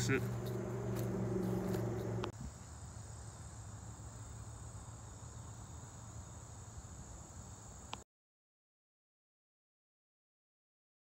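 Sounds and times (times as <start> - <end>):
low background hum: 0.0 - 7.9
insects trilling: 0.0 - 8.0.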